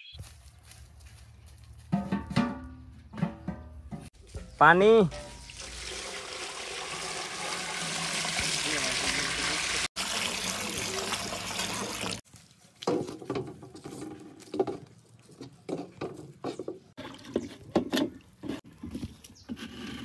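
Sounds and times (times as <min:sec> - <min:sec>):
water pouring: 0:05.1 - 0:12.2
short knocks and scrapes: 0:12.9 - 0:20.0.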